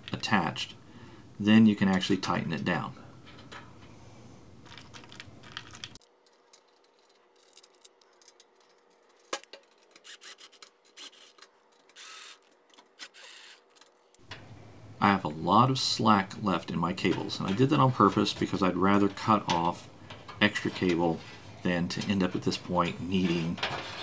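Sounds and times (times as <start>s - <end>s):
screws scraping: 5.5s - 14.0s.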